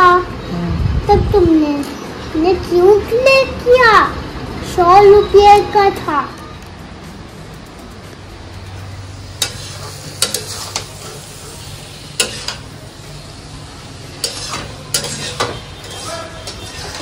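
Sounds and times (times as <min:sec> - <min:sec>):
food sizzling in a pan: 0:09.0 - 0:17.0
metal spatula scraping a pan: 0:09.2 - 0:12.8, 0:14.1 - 0:17.0.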